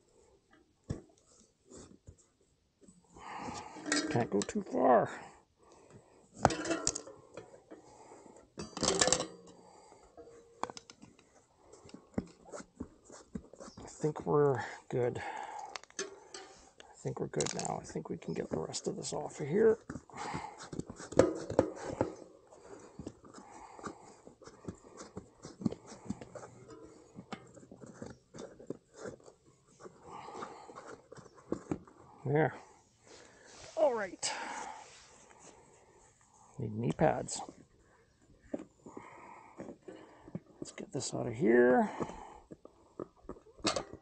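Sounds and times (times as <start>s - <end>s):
tyre rubber scraping and squeaking: 12.2s - 14.6s, 18.3s - 32.1s.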